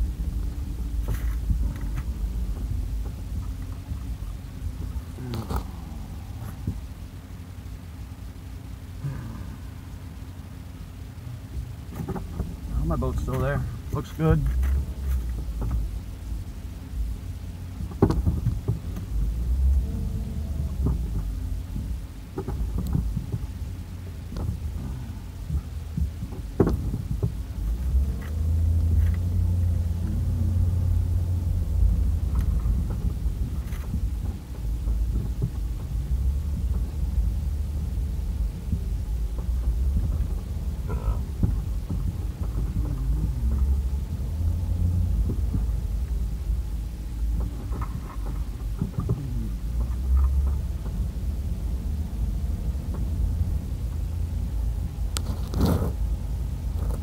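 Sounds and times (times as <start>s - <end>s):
vehicle rumble from cabin: 0.0s - 57.0s
light knocks and rattles: 11.9s - 16.1s, 17.7s - 30.3s.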